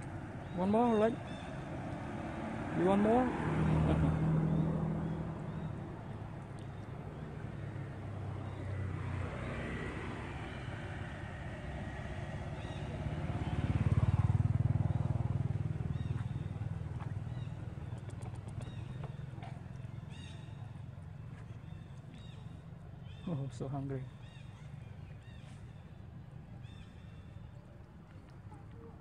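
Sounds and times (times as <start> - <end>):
motorcycle engine running: 11.3 - 21.4.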